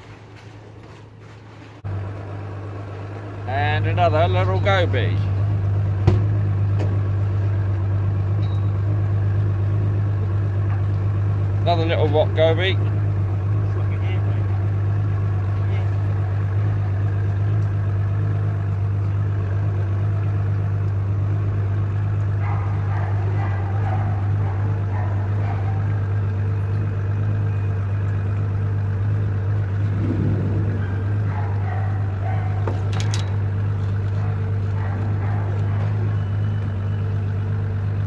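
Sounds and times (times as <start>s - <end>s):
faint handling noises: 0.0s - 1.8s
large engine humming: 0.0s - 38.0s.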